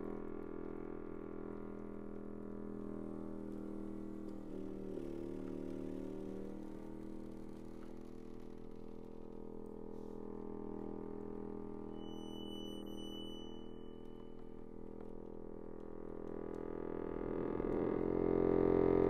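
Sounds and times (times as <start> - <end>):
accordion sustained low chord: 0.0 - 8.2, 15.5 - 19.0.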